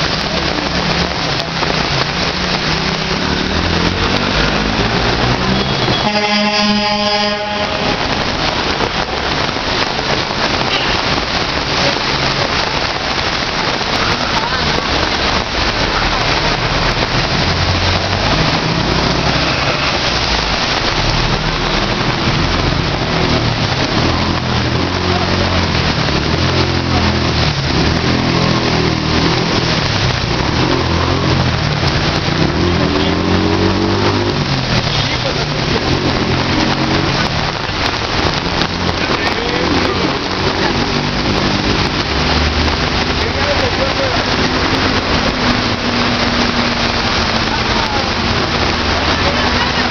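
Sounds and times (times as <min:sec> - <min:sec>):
heavy rain hiss: 0:00.0 - 0:49.9
traffic driving through water: 0:00.0 - 0:49.9
vehicle engines humming: 0:00.0 - 0:49.9
vehicle horn: 0:05.6 - 0:08.2.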